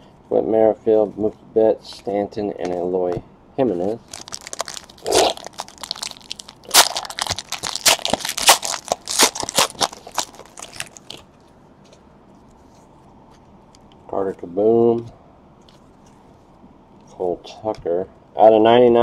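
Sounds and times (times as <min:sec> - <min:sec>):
foil wrapper crinkling: 0:04.0 - 0:11.2.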